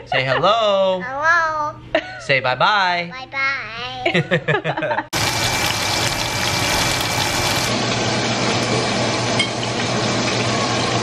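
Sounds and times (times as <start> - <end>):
toddler voice: 1.0 - 1.8, 3.1 - 4.1.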